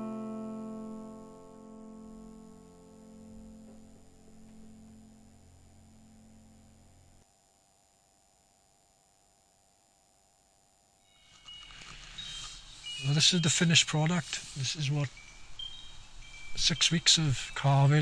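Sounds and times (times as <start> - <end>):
acoustic guitar music: 0.0 - 7.2.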